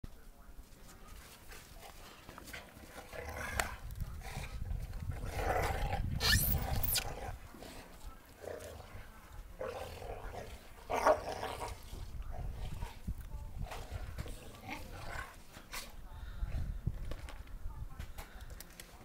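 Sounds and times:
dogs play growling: 1.5s - 16.0s.

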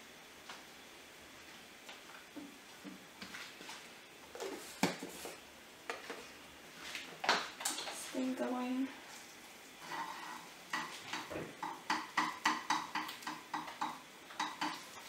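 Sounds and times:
plates and jar knocking on countertop: 10.7s - 14.8s.

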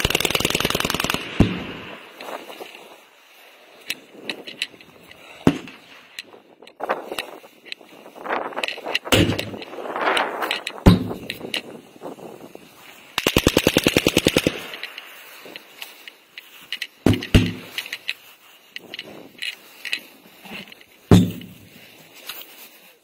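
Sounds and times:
machine-gun burst: 0.0s - 2.0s, 13.2s - 14.8s.

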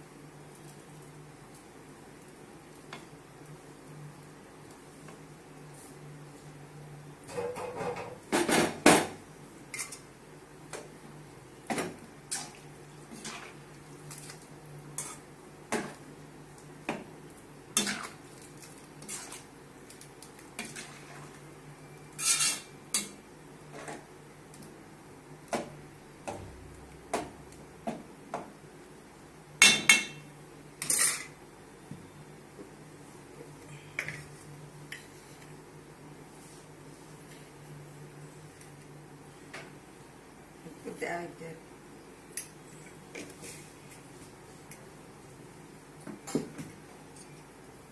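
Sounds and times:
metal ladle scraping a pot: 19.0s - 19.4s, 22.2s - 22.7s.

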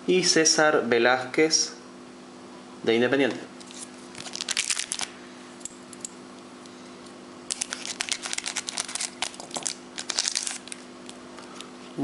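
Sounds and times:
faint steady hum: 0.0s - 12.0s
foil wrapper crinkling: 3.6s - 5.2s, 7.5s - 11.6s.

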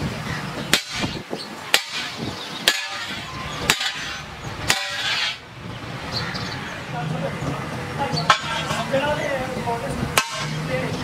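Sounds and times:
hammer striking metal pipe: 0.7s - 5.4s, 8.3s - 8.9s, 10.2s - 10.7s.

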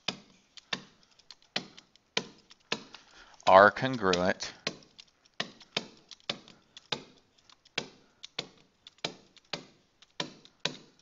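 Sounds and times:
stylus tapping on writing surface: 0.0s - 3.0s.

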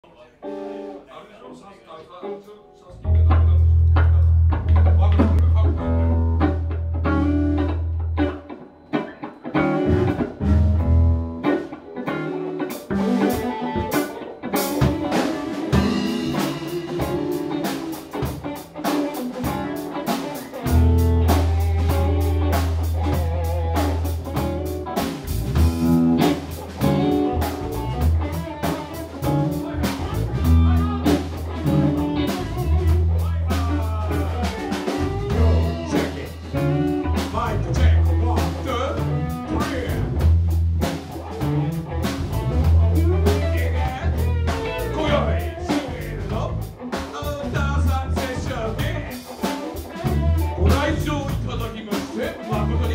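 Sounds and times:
live rock band playing: 0.4s - 1.0s, 3.0s - 52.9s
heavy bass line: 3.0s - 8.4s, 9.7s - 11.4s, 14.8s - 18.8s, 20.6s - 49.2s, 50.0s - 51.8s, 52.5s - 52.9s
busy drums: 3.0s - 52.9s.

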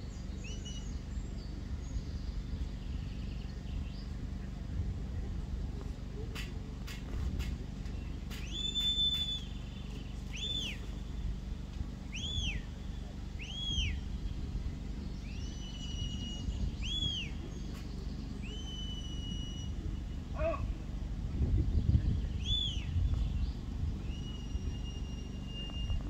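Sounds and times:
wind rumble on microphone: 0.0s - 26.0s
shrill whistled commands: 8.4s - 9.6s, 10.3s - 10.9s, 12.1s - 12.7s, 13.4s - 14.0s, 15.4s - 17.4s, 18.4s - 20.7s, 22.4s - 23.0s.

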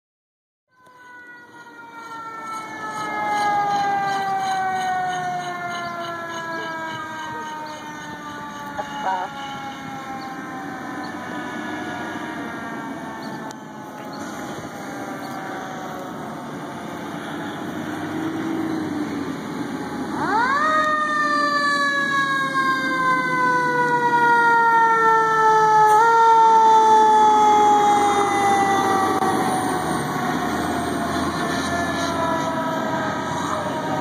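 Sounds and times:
fire truck siren wailing: 0.7s - 34.0s
truck engine driving past: 9.4s - 24.4s, 26.9s - 34.0s.

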